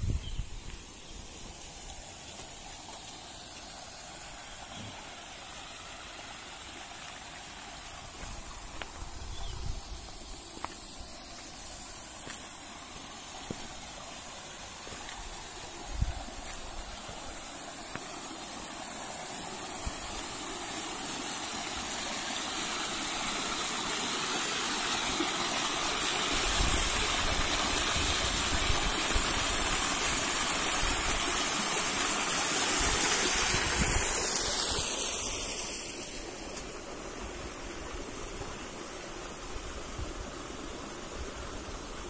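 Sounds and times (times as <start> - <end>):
waterfall rushing: 0.8 - 42.0.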